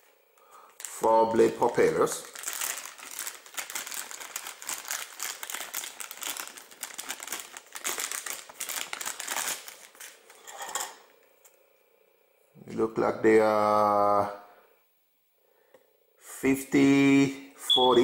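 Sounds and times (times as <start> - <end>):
plastic bag crinkling: 0.7 - 10.9.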